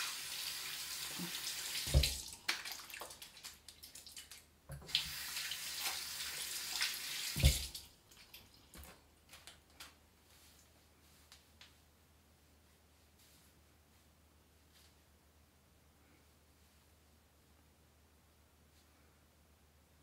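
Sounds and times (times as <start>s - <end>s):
water running from a tap: 0.0s - 4.0s, 4.7s - 7.8s.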